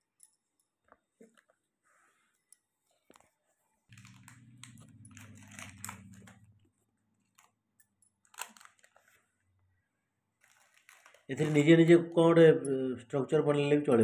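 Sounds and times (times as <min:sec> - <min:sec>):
plastic wrapper crinkling: 0:03.9 - 0:09.4, 0:10.4 - 0:12.1.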